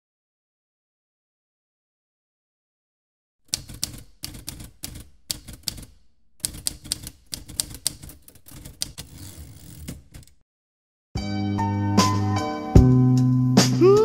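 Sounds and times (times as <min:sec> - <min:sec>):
typewriter keys clacking: 0:03.5 - 0:10.4.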